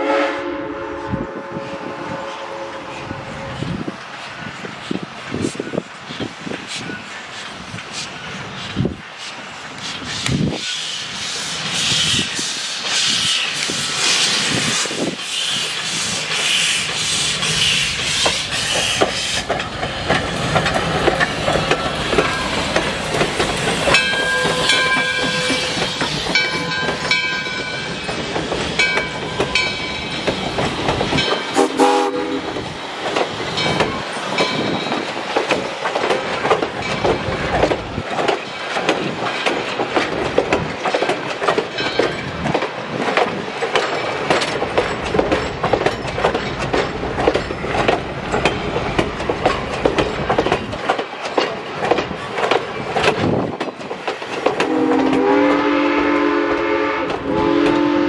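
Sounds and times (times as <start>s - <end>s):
steam locomotive exhaust beats: 0.0s - 58.0s
coaches clattering over rail joints: 14.5s - 31.6s, 32.5s - 55.3s.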